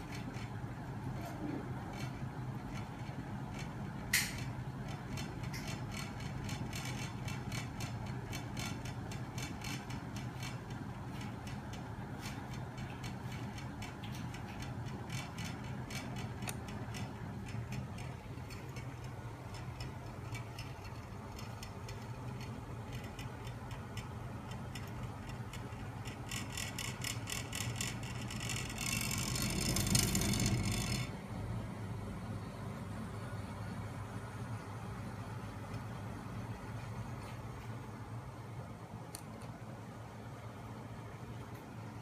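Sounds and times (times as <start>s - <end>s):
rapid mechanical clicking: 0.0s - 31.6s
electric motor humming: 26.1s - 31.4s.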